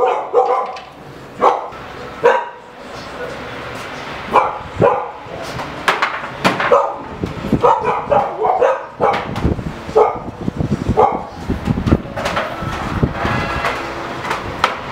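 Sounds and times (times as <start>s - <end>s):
dog barking: 0.0s - 2.7s, 4.3s - 5.3s, 6.6s - 10.3s, 11.0s - 11.4s.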